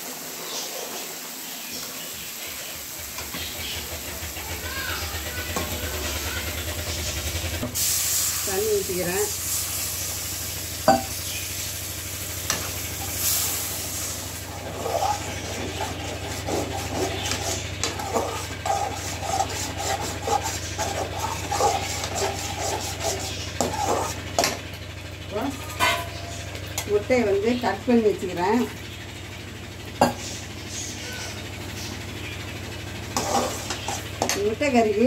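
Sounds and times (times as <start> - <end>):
sizzling: 0.0 - 35.0
spoon scraping in a pan: 12.5 - 24.6, 25.5 - 26.6, 33.1 - 34.6.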